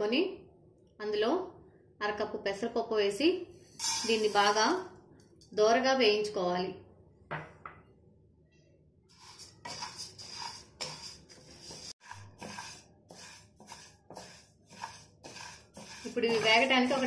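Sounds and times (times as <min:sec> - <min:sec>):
spatula scraping dry lentils: 0:09.1 - 0:17.0.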